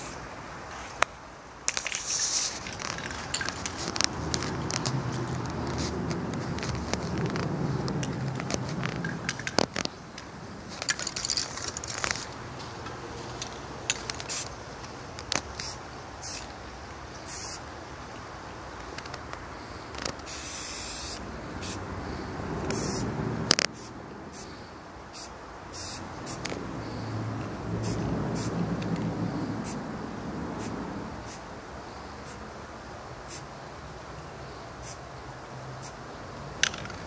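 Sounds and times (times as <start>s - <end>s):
spray paint can hissing: 1.7s - 7.2s, 14.2s - 14.5s, 15.3s - 16.5s, 17.2s - 17.6s, 20.2s - 21.8s, 22.6s - 23.1s, 23.7s - 24.5s, 25.1s - 26.5s, 27.8s - 28.5s, 30.6s - 31.4s, 33.3s - 33.5s
sharp clicks and knocks: 1.7s - 14.3s, 36.6s - 37.0s.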